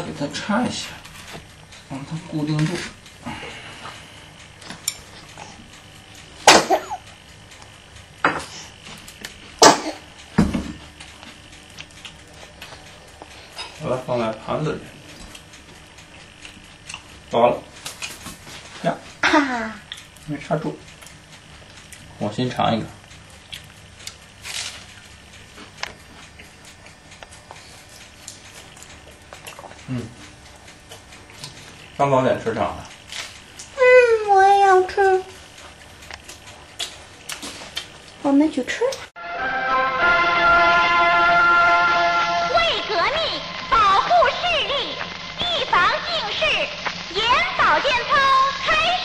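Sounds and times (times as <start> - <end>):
breathy hiss: 0.8 - 7.2, 7.8 - 11.0, 40.3 - 49.0.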